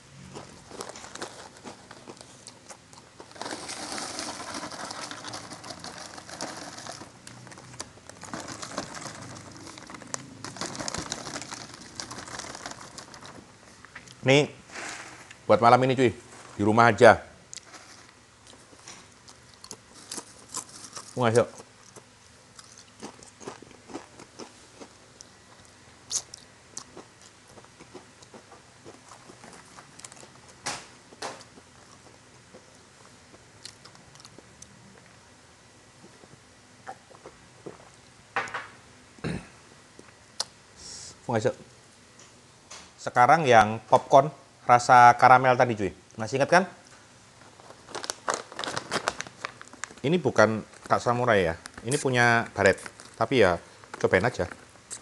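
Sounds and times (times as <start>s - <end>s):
chewing crunchy chips: 0.2s - 14.2s, 17.5s - 30.6s, 31.4s - 35.2s, 47.5s - 51.0s, 51.6s - 55.0s
plastic packaging crinkling: 0.4s - 13.5s, 19.6s - 21.6s, 47.4s - 55.0s.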